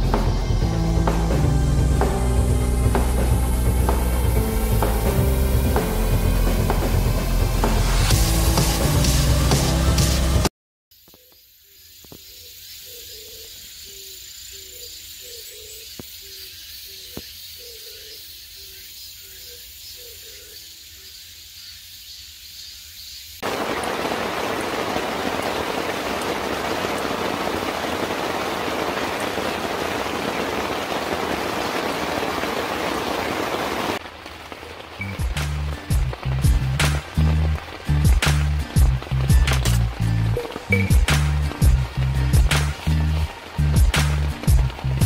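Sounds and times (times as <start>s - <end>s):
heavy rain: 0.0s - 10.5s, 23.4s - 45.0s.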